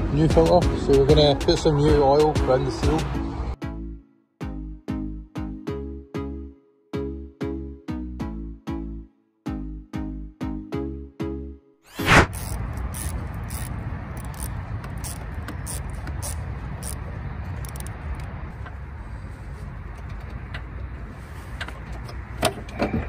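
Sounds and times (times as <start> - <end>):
hands clicking hose fittings: 12.3 - 18.8.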